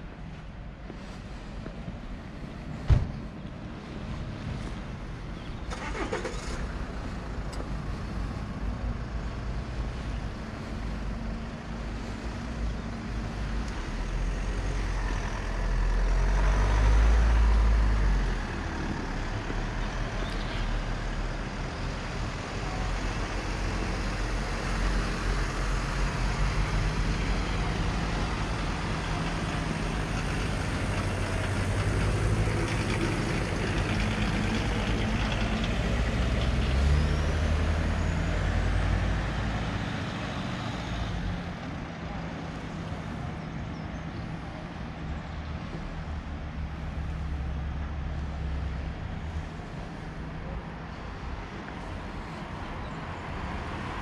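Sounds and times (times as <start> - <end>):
heavy vehicle engine rumble: 0.0 - 54.0.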